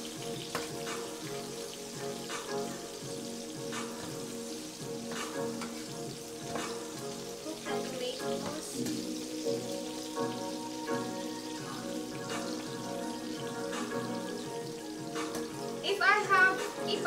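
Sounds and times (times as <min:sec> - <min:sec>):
background music: 0:00.0 - 0:17.0
fish sizzling in a pan: 0:00.0 - 0:17.0
spatula scraping a pan: 0:05.0 - 0:06.9.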